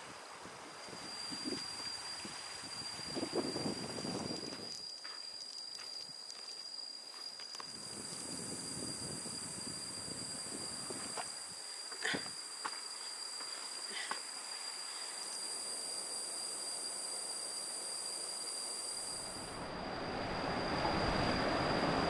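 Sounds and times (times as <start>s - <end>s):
insects shrilling: 0.8s - 19.5s
steady rushing noise: 19.4s - 22.0s.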